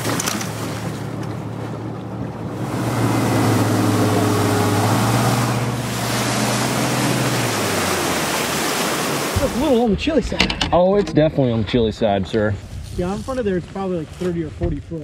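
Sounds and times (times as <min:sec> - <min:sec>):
outboard motor drone: 0:00.0 - 0:09.8
rush of boat wake: 0:00.0 - 0:09.9
wind: 0:00.0 - 0:15.0.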